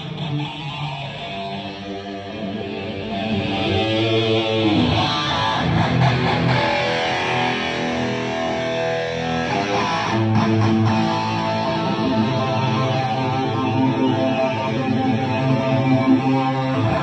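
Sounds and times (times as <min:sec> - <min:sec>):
electric guitar chords: 0:00.0 - 0:17.0.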